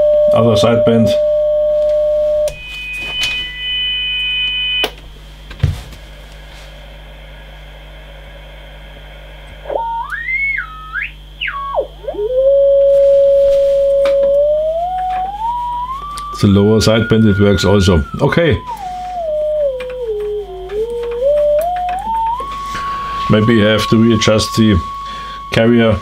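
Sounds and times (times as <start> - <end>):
whistle-like radio beat tone: 2.4 - 5.0, 9.6 - 26.0.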